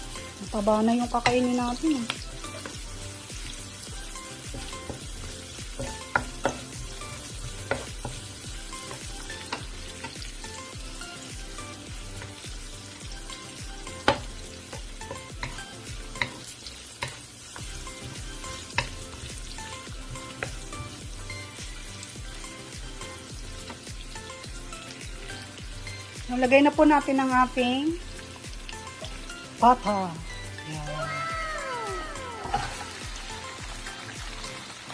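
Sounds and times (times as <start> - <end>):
onions sizzling in oil: 0.0 - 34.9
spatula tapping against pan: 4.5 - 10.3, 13.9 - 16.4, 18.6 - 19.0.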